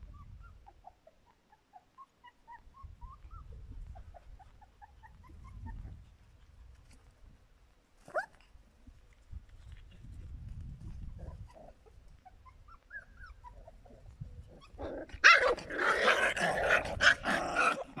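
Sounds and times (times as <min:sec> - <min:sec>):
puppy whining: 0:00.0 - 0:06.0, 0:11.1 - 0:18.0
puppies growling and yapping: 0:00.0 - 0:06.1, 0:11.1 - 0:18.0
puppy yelping: 0:00.1 - 0:05.9, 0:11.2 - 0:18.0.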